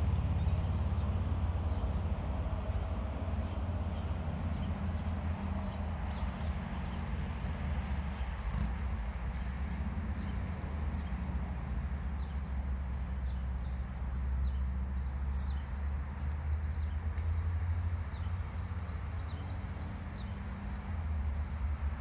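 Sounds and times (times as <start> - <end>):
steady low rumble: 0.0 - 17.4.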